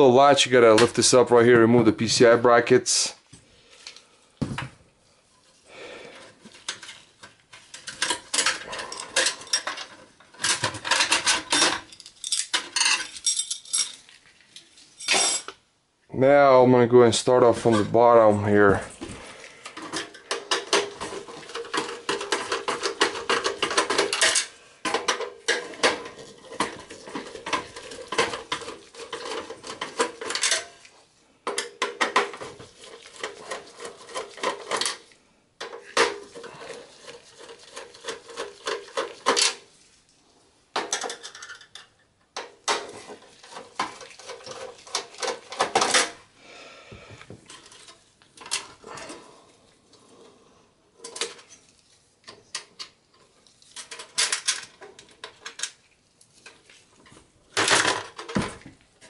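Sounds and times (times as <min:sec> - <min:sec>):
screwdriver clicking and scraping metal: 0:19.7 - 0:30.9.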